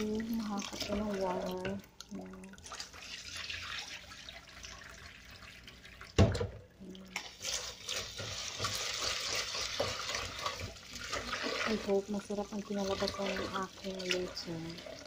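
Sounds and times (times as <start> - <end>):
water splashing: 0.0 - 6.2
kitchen tap running: 0.0 - 15.0.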